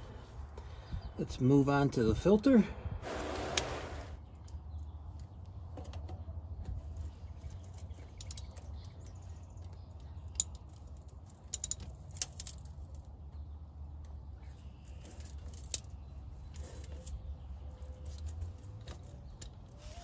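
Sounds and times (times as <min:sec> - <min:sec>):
hand tools clicking on metal: 0:07.9 - 0:12.8.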